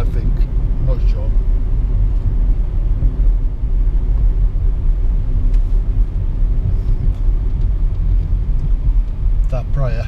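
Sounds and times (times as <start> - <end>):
car engine rumbling: 0.0 - 10.0
road noise inside car: 0.0 - 10.0.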